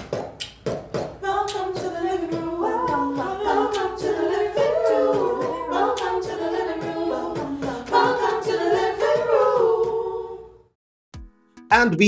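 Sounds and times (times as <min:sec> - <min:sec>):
a cappella group singing: 0:01.2 - 0:10.8.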